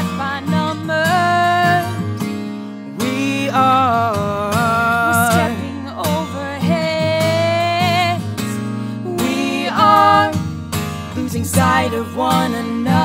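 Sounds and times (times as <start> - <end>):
woman singing wordless melody: 0.0 - 2.0, 4.9 - 8.4, 9.1 - 10.4, 11.2 - 13.0
acoustic guitar: 0.0 - 13.0.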